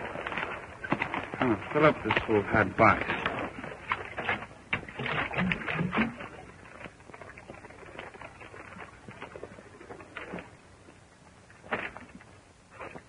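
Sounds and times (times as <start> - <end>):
horse hooves stamping on rocks: 0.0 - 6.2.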